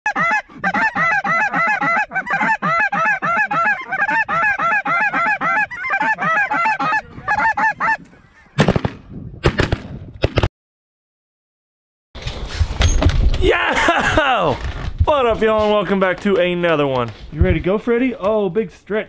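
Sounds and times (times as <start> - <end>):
snow geese honking: 0.1 - 8.6.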